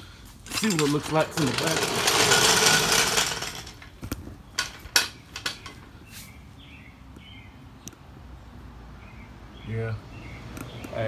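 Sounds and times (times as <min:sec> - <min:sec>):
floor jack rolling on concrete: 0:00.4 - 0:05.8.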